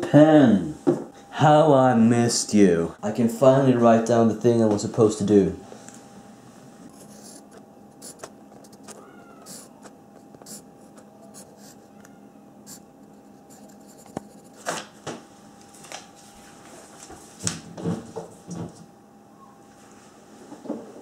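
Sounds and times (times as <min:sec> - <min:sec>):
pencil scratching on paper: 0:06.9 - 0:11.9, 0:12.7 - 0:14.7.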